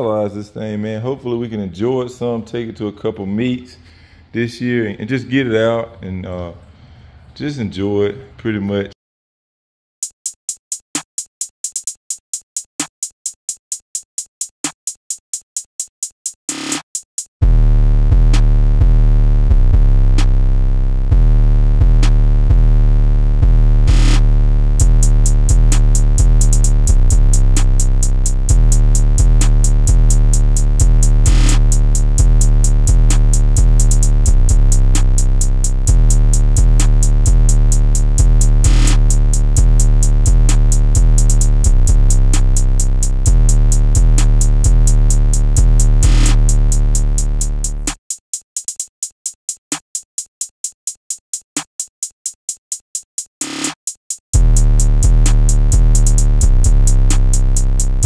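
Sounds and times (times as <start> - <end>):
electronic music with beat: 10.0 - 20.4, 21.1 - 58.0
fast ticking pattern: 24.8 - 58.0.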